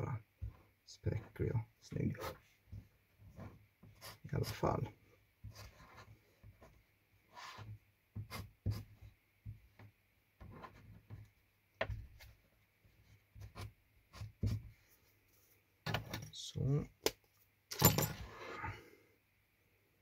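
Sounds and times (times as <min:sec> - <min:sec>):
marker scratching on material: 0:02.0 - 0:04.8, 0:05.4 - 0:09.2, 0:13.0 - 0:14.8.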